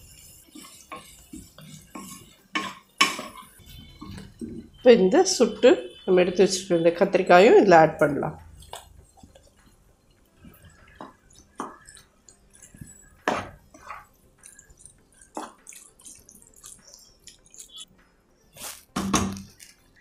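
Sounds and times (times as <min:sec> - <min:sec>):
soft wet squishing: 0:08.5 - 0:17.9.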